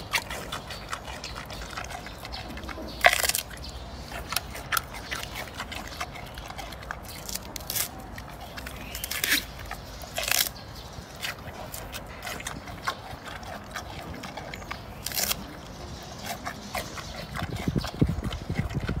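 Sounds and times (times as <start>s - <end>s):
panda chewing plant stalk: 0.0s - 19.0s.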